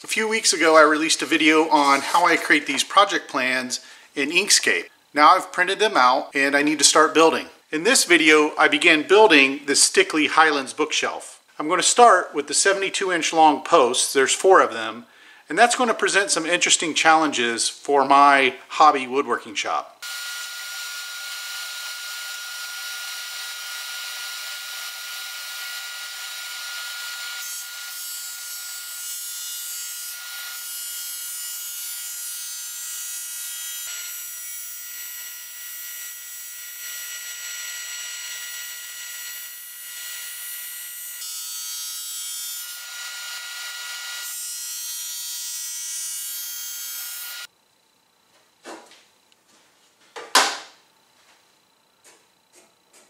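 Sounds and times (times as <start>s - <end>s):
thickness planer motor whine: 20.0s - 28.0s.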